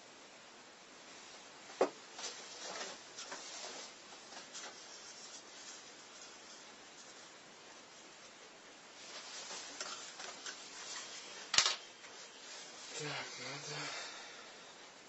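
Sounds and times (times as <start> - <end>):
light clicks and scraping: 9.0 - 12.3.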